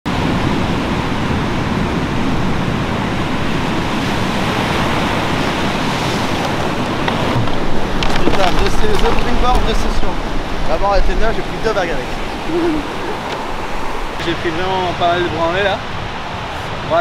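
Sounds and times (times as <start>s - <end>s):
waves breaking on beach: 0.1s - 17.0s
wind rumbling on microphone: 0.1s - 17.0s.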